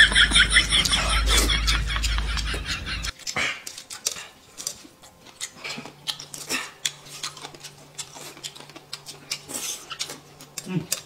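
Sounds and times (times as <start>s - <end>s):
wet chewing and lip smacking: 3.1s - 11.0s.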